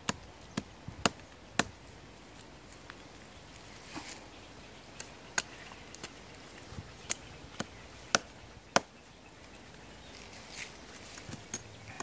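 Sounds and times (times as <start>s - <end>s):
hatchet chopping tree trunk: 0.0s - 1.9s, 5.0s - 6.2s, 7.0s - 9.0s.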